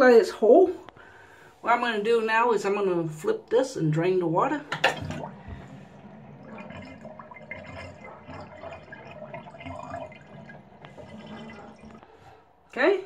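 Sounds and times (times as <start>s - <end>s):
bathtub water draining: 1.8s - 12.9s.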